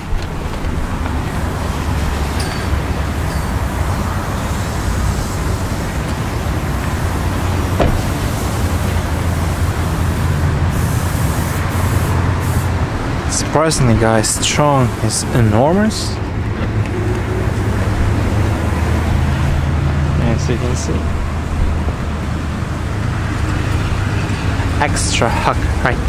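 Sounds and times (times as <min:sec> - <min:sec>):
loud rumbling noise: 0:00.0 - 0:26.0
hiss: 0:04.3 - 0:12.8
sharp knock: 0:07.8 - 0:08.2.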